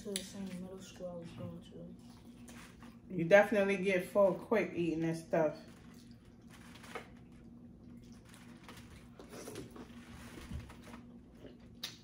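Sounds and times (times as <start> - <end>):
low steady hum: 0.0 - 12.0
quiet chewing: 5.7 - 12.0.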